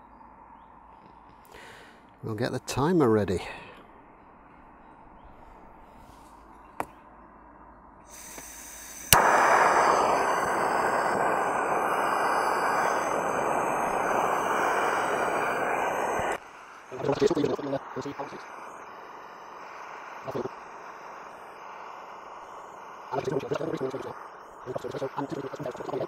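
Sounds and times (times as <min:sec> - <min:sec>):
gas burner roaring: 0:08.1 - 0:26.0
gas hissing faintly: 0:08.1 - 0:26.0.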